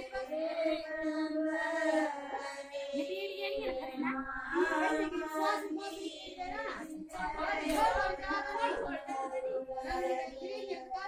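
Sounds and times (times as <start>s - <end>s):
women singing unaccompanied: 0.0s - 11.0s.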